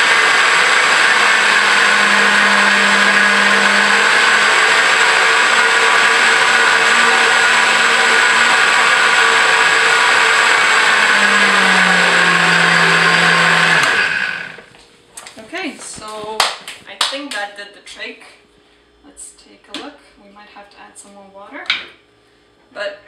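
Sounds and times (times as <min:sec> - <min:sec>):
blender motor running: 0:00.0 - 0:14.7.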